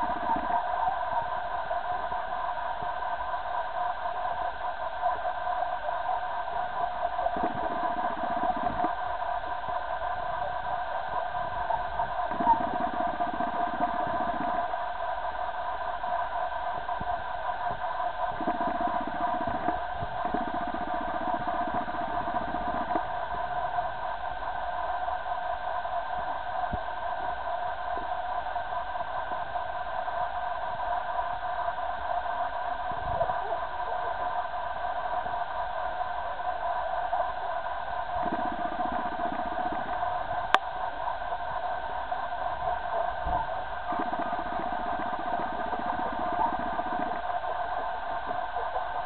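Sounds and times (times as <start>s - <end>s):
steady mechanical hum: 0.0s - 49.0s
machine hum: 37.8s - 49.0s.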